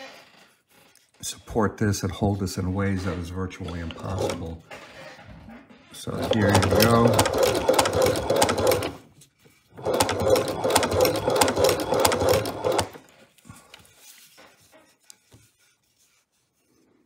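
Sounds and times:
sewing machine mechanical clatter: 3.9s - 4.6s, 6.0s - 9.0s, 9.7s - 13.1s.

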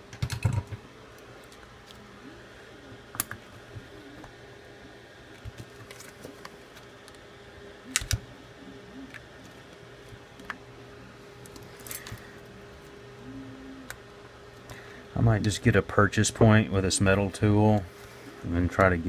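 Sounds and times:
faint steady hum: 0.0s - 19.0s
playing cards handled: 5.4s - 6.9s.

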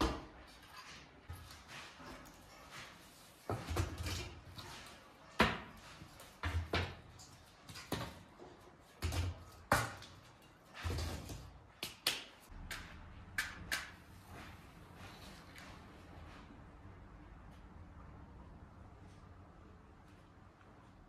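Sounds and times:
wooden sticks knocking and clattering: 3.5s - 14.0s.

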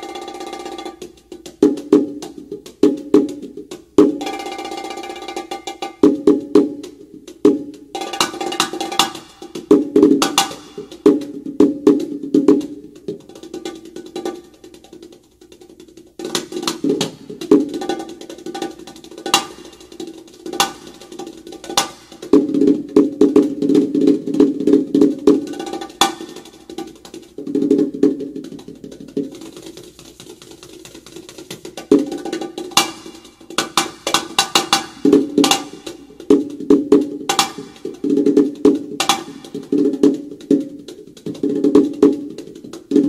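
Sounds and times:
bongos played by hand: 0.0s - 43.0s.

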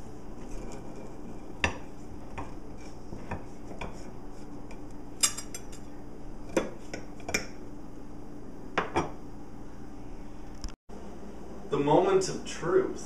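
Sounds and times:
knife clinking against ceramic plate: 5.2s - 5.8s.

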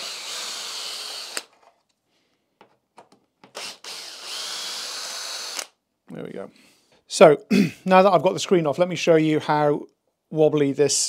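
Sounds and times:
cordless drill driving screws: 0.0s - 1.6s, 3.4s - 5.8s.

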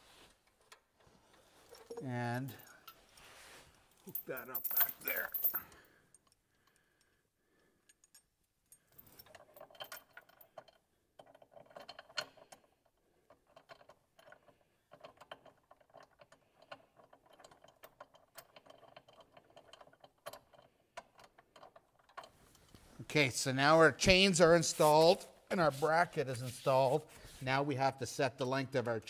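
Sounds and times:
steel chain clinking: 3.9s - 6.0s, 7.9s - 12.6s.

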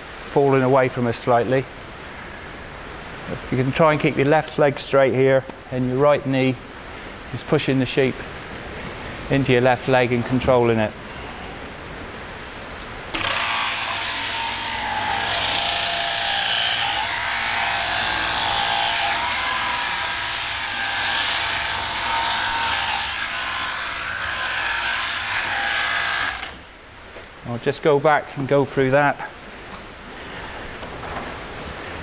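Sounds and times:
shearing handpiece buzzing: 13.1s - 26.6s.

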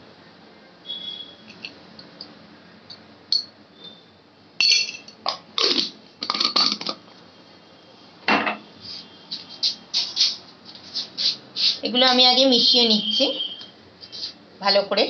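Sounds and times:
glass jar clinking: 3.3s - 3.5s, 4.6s - 5.4s.

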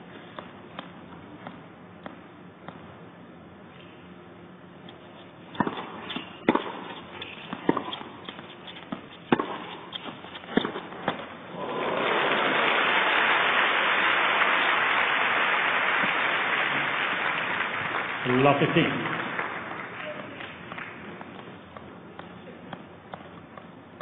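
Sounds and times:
tennis ball hits: 5.5s - 11.3s
crowd applause: 11.5s - 21.0s.

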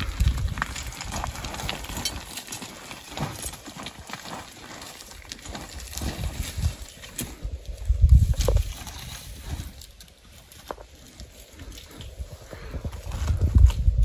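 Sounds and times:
footsteps on stony ground: 0.0s - 14.0s
low rumble on microphone: 5.7s - 9.8s, 11.6s - 14.0s.

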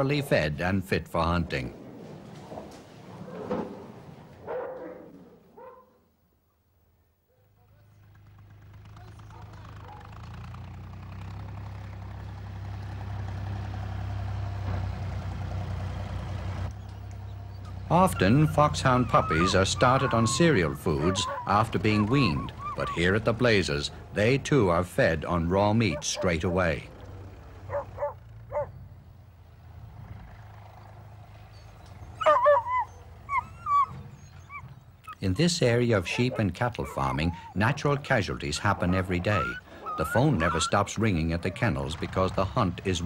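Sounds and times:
hounds yelping: 4.4s - 6.0s, 9.2s - 10.2s, 17.6s - 24.1s, 25.4s - 26.8s, 27.6s - 28.8s, 31.4s - 42.5s
tractor engine humming: 7.5s - 43.0s.

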